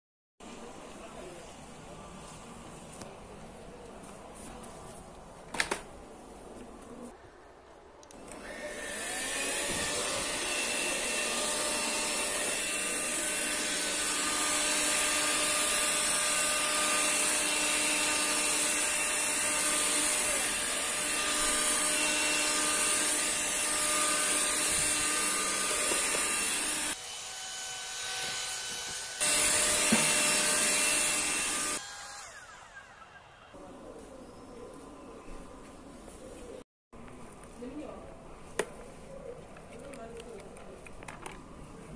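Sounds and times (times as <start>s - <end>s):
stick vacuum running on carpet: 23.8s - 27.0s.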